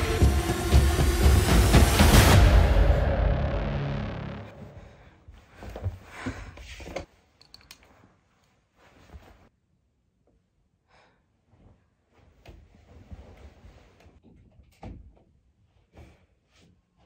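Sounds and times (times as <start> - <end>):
bedding rustling: 5.3 - 9.5, 11.5 - 14.2.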